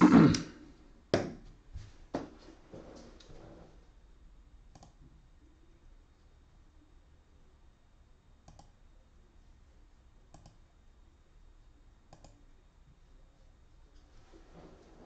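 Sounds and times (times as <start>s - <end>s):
faint computer mouse clicks: 4.7s - 5.0s, 8.4s - 8.8s, 10.3s - 10.6s, 12.1s - 12.4s.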